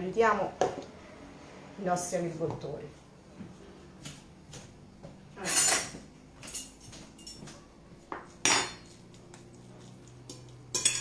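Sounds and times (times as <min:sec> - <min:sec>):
cutlery and dishes clinking: 0:05.4 - 0:07.6, 0:08.4 - 0:09.0, 0:10.2 - 0:11.0.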